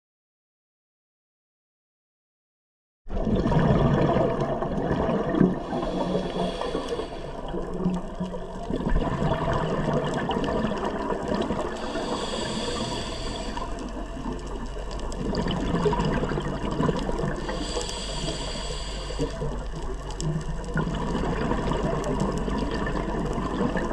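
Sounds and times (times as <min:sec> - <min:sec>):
steady underwater noise: 0:03.1 - 0:23.9
scuba regulator breathing bubbles: 0:03.2 - 0:23.9
regulator hiss: 0:05.7 - 0:07.5, 0:11.7 - 0:14.1, 0:17.4 - 0:19.6.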